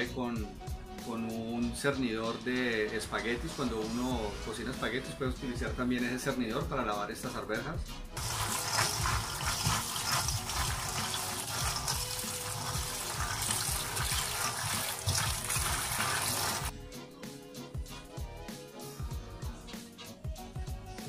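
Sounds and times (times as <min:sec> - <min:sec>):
hands rubbing peas in colander: 0:08.2 - 0:16.7
tap water running into sink: 0:08.2 - 0:16.7.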